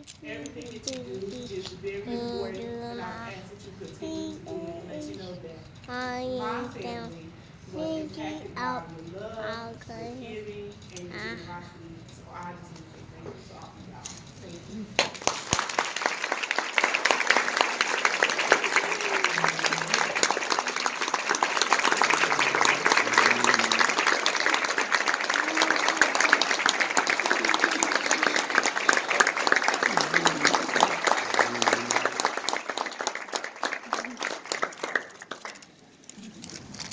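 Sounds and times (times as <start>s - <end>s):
voices: 0.2s - 15.0s, 17.4s - 32.4s
people applauding: 15.0s - 35.8s.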